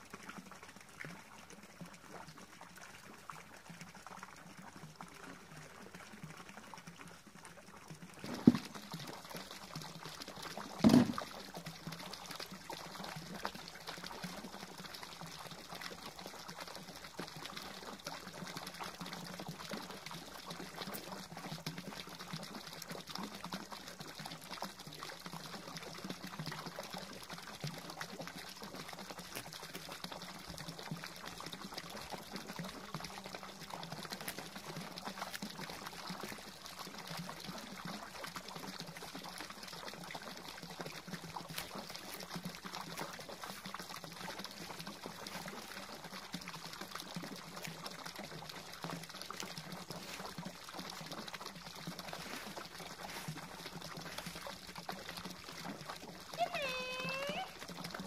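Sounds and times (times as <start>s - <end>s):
fountain water splashing: 0.0s - 58.0s.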